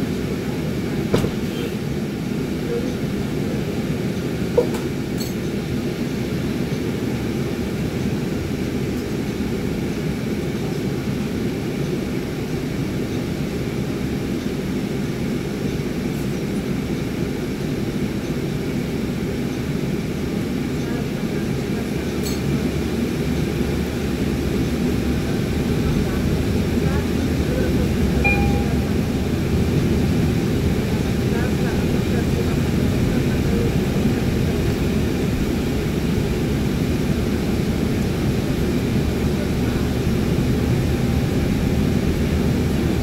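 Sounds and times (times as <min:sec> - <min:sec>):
bus engine rumble: 0:00.0 - 0:43.0.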